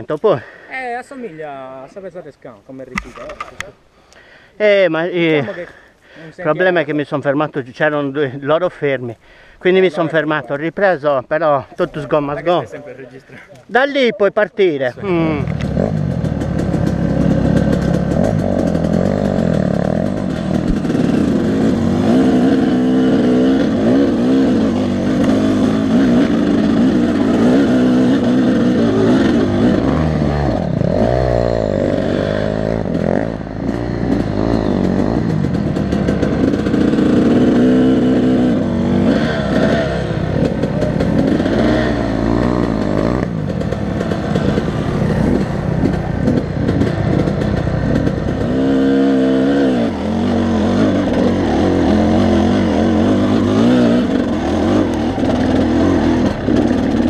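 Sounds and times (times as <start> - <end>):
two-stroke dirt bike engine revving: 11.8 - 57.0.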